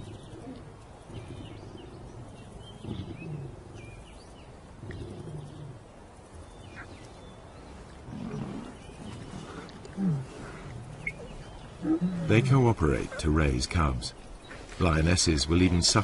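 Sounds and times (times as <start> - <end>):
lions growling: 0.0 - 16.0
faint bird chirps: 6.3 - 12.3.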